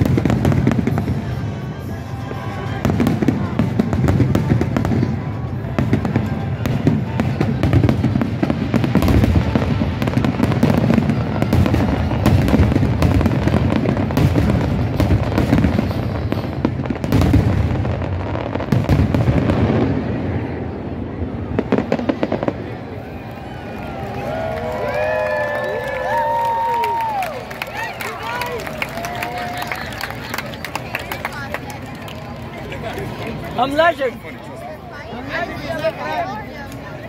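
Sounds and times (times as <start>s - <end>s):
fireworks booming: 0.0s - 1.9s, 2.6s - 23.0s
fireworks crackling: 0.0s - 37.0s.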